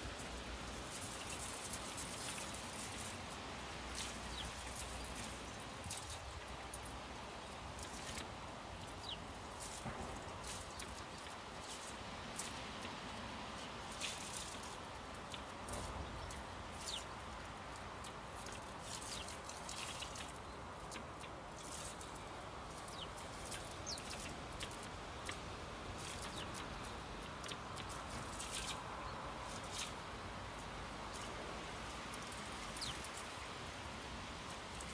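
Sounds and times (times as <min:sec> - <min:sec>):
steady background hiss: 0:00.0 - 0:34.9
sparrows chirping: 0:04.0 - 0:06.7, 0:08.8 - 0:11.9, 0:14.0 - 0:17.4, 0:18.0 - 0:25.4, 0:26.0 - 0:30.0, 0:32.2 - 0:33.4.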